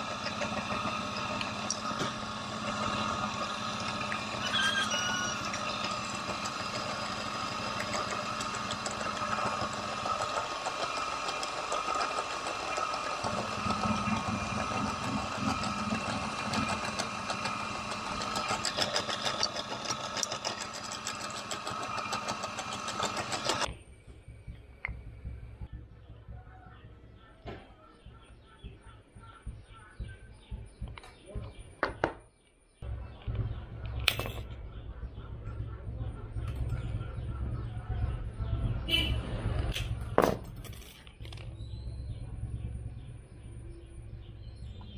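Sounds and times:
drill press drilling into wood: 0.0s - 23.7s.

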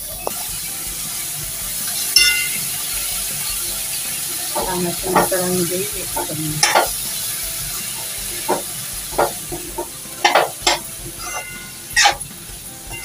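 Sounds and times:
vegetables sizzling in hot oil: 0.0s - 13.0s
metal spatula scraping pan: 4.5s - 7.0s, 8.0s - 13.0s.

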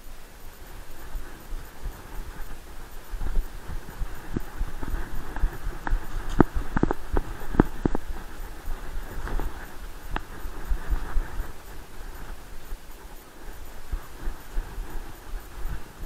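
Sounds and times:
muffled camera thumping and knocking: 1.9s - 11.6s.

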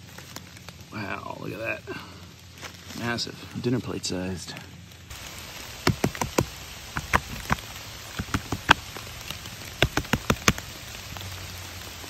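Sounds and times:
steady rain hiss: 0.0s - 12.0s
sharp close taps: 5.8s - 8.8s, 9.4s - 10.6s.

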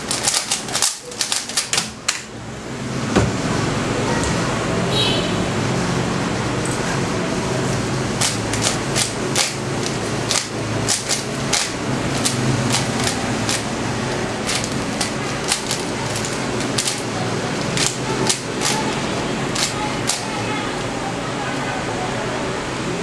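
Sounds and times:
steady low hum: 0.0s - 23.0s
puzzle cube clicking: 8.2s - 13.7s.

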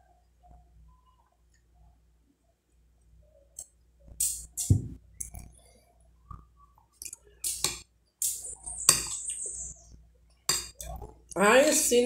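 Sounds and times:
metal spoon scraping glass bowl: 7.6s - 9.8s.

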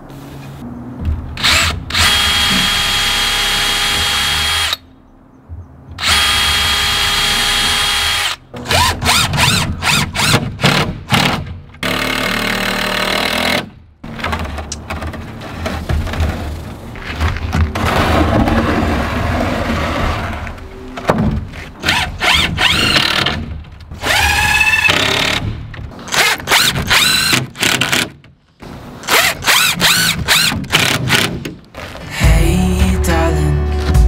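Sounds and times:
wooden frame clattering: 14.0s - 19.4s
cordless drill driving screws: 26.1s - 28.0s, 29.0s - 31.2s.

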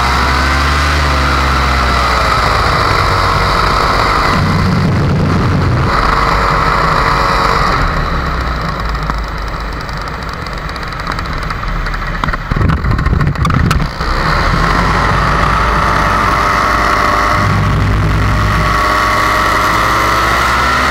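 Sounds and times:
two-stroke engine running: 0.0s - 20.9s
wind buffeting microphone: 2.1s - 8.6s, 10.6s - 20.3s.

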